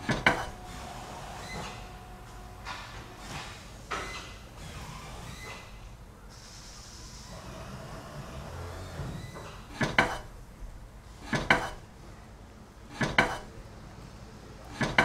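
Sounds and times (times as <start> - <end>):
sharp clattering double knocks: 9.6 - 10.3, 11.2 - 11.8, 13.0 - 13.5.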